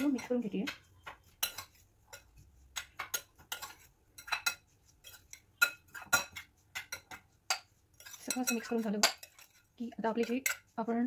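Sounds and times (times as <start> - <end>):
spoon clinking in glass bowl: 3.0 - 9.5.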